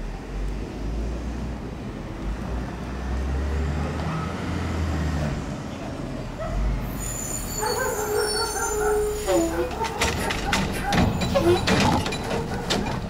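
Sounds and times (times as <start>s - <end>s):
air brakes squealing: 6.8s - 12.3s
garbage truck engine running: 8.7s - 13.0s.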